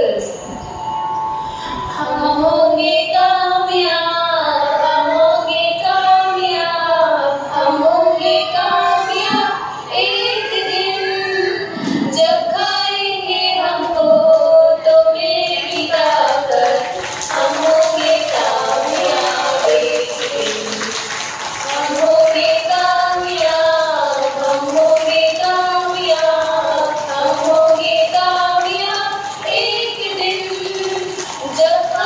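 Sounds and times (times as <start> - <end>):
children singing: 7.8 - 32.0.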